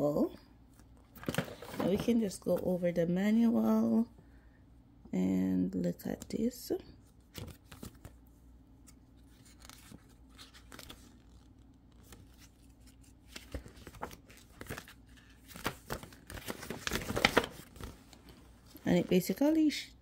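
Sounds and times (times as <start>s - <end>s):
pages turned by hand: 8.9s - 19.3s
paper rustling: 8.9s - 19.4s.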